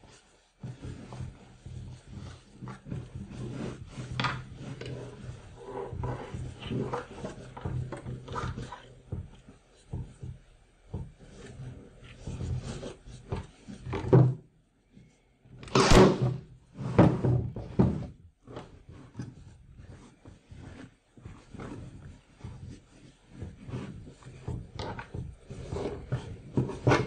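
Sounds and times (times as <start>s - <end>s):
staple gun firing: 15.6s - 16.3s.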